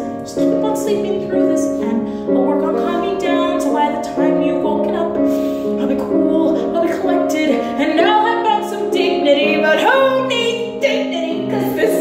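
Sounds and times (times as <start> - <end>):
piano accompaniment: 0.0 - 12.0
woman singing: 0.0 - 12.0.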